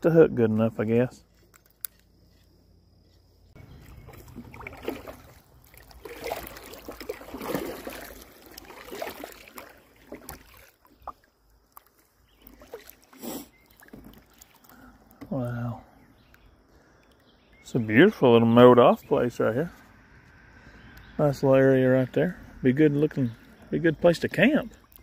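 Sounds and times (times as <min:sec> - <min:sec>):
kayak paddle strokes in water: 0:03.2 - 0:14.7
water sloshing against plastic hull: 0:03.6 - 0:15.4.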